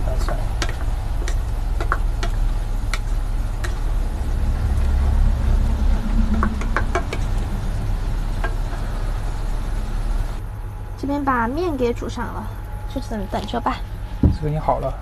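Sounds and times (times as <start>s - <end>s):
steady low hum: 0.0s - 15.0s
spatula stirring sauce in pan: 0.1s - 4.2s.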